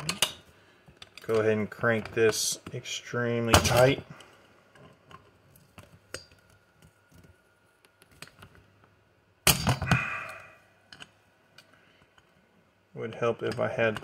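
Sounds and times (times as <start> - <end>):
metal tools clicking and scraping: 0.0 - 0.4.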